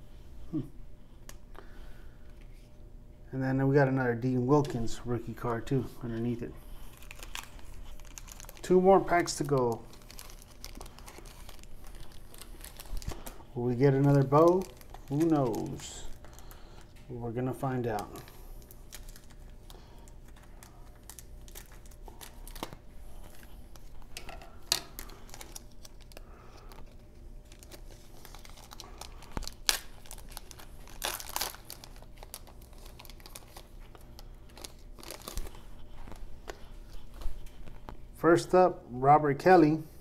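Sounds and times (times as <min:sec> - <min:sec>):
wrapper crinkling and tearing: 0:06.1 - 0:17.0, 0:17.6 - 0:37.8.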